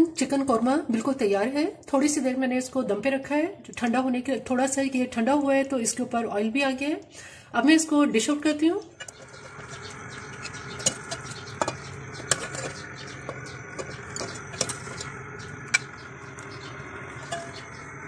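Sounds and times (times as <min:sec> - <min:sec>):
ladle scraping metal pot: 0:08.9 - 0:18.0.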